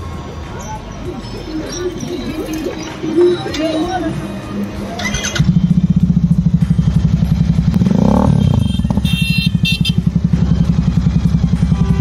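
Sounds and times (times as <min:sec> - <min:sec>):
motorcycle engine idling: 0:05.3 - 0:12.0.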